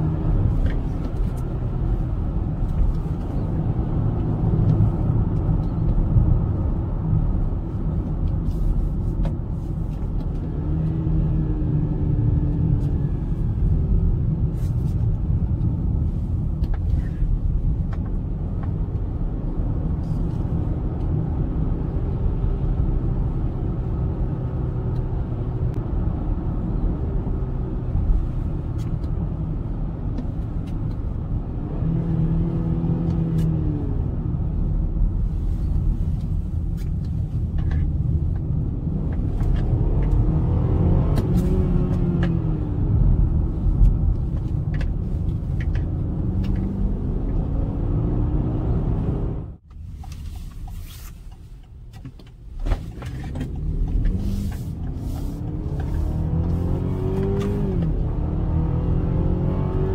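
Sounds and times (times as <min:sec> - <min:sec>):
road and tyre noise: 0:00.0 - 0:59.9
car engine note rising and falling: 0:10.1 - 0:16.0, 0:17.9 - 0:36.0, 0:38.0 - 0:49.9, 0:52.8 - 0:59.9.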